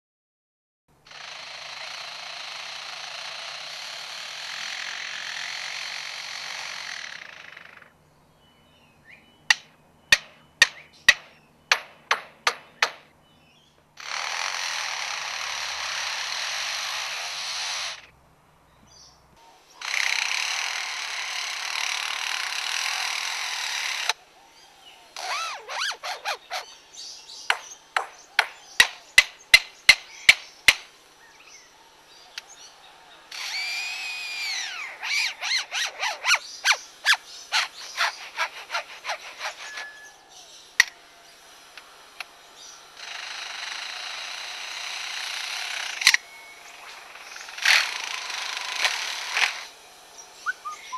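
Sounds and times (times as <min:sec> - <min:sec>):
bird mimicking power-tool whirring: 0:01.0 - 0:08.0, 0:10.1 - 0:18.2, 0:19.6 - 0:50.9
bird mimicking hammer knocks: 0:09.5 - 0:13.1, 0:27.4 - 0:30.9.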